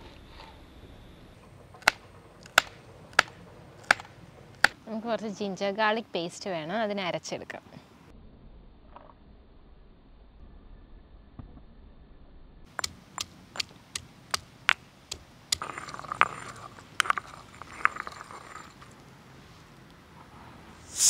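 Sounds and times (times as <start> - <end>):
stone pestle pounding in mortar: 1.8 - 4.8
pestle grinding paste in bowl: 15.1 - 18.9.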